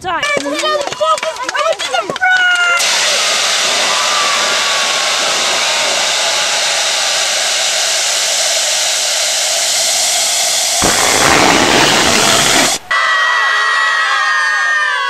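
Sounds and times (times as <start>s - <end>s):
smoke machine hissing: 2.7s - 12.9s.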